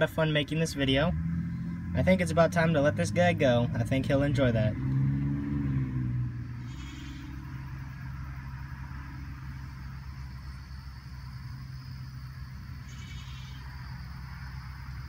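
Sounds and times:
low mechanical hum: 6.6 - 15.0.

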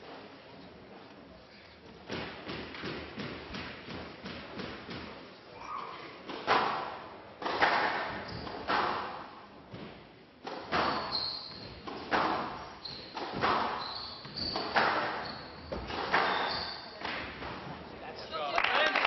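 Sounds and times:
shoes squeaking on court floor: 8.1 - 8.7, 10.7 - 17.8.

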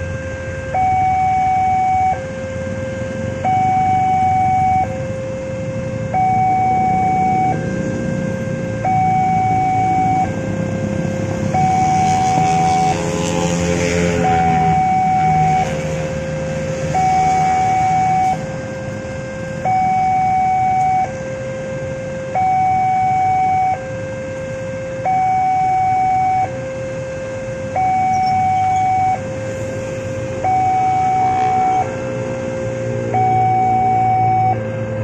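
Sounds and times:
two-tone crossing alarm chime: 0.0 - 34.8
motorcycle engines passing: 5.6 - 20.0, 28.0 - 34.2.

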